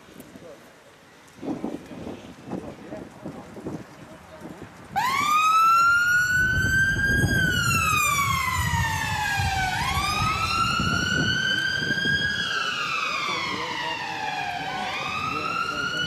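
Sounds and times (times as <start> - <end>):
emergency siren wailing: 5.0 - 16.0.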